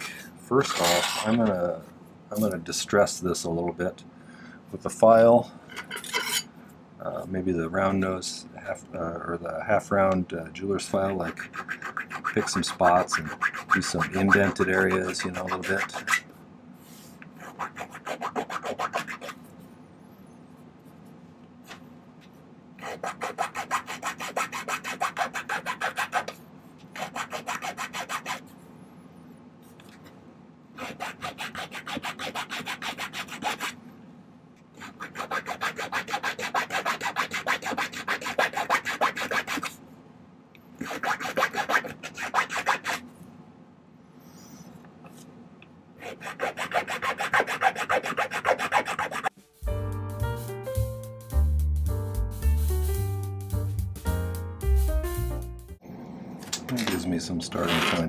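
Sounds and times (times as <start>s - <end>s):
file rasping on metal wire: 11.2s - 16.3s, 17.4s - 19.4s, 22.8s - 26.4s, 27.0s - 28.4s, 30.8s - 33.8s, 34.8s - 39.8s, 40.8s - 43.0s, 46.0s - 49.3s.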